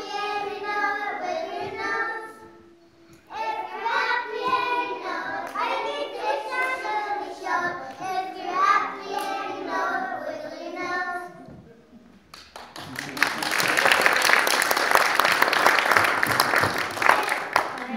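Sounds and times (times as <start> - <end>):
children singing together: 0.0 - 11.6.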